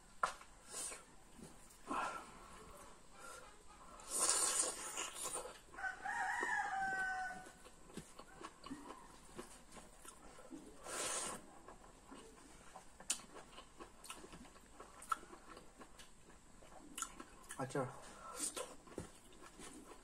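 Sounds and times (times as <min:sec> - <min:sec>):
rooster crowing: 0:05.7 - 0:07.7
clicks and smacks of eating: 0:07.4 - 0:10.6, 0:11.3 - 0:17.7.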